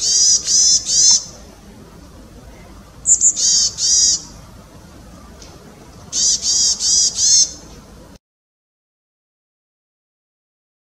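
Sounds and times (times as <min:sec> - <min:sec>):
bird calling: 0:00.0 - 0:08.2.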